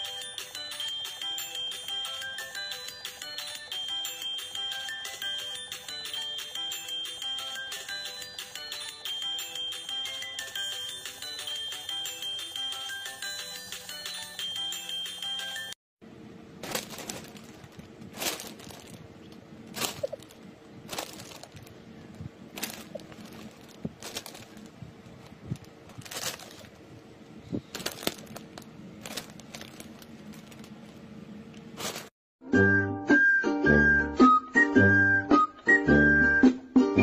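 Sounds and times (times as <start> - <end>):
faint steady hum: 16.0 - 32.1
foil bags crinkling: 16.5 - 32.1.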